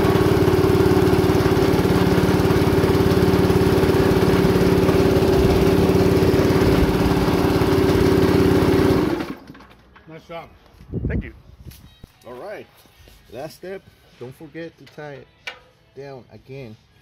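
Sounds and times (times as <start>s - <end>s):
air compressor running: 0.0s - 9.7s.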